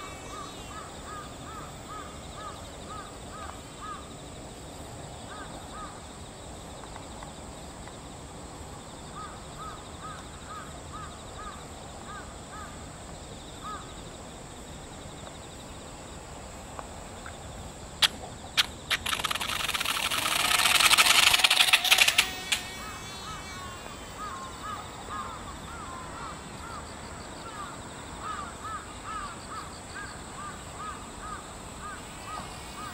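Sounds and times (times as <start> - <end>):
plane scraping on asphalt: 18.0 - 24.4
bird calling: 18.0 - 26.8.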